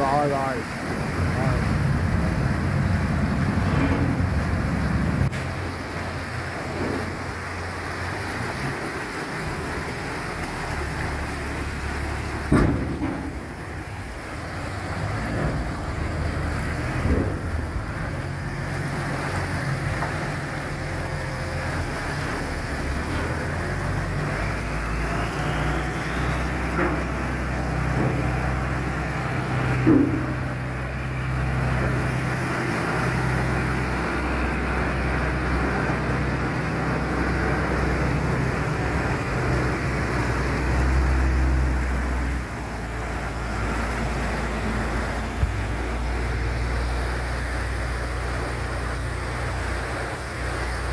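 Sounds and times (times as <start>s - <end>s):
boat engine droning: 0.0s - 50.9s
water churning along hull: 0.0s - 50.9s.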